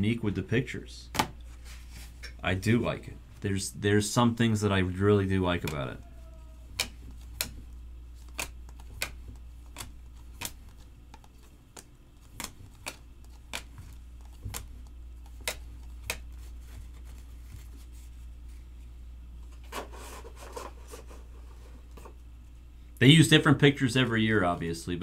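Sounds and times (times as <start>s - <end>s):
steady low hum: 0.0s - 25.0s
trading cards clicking: 5.6s - 6.0s, 6.6s - 16.4s.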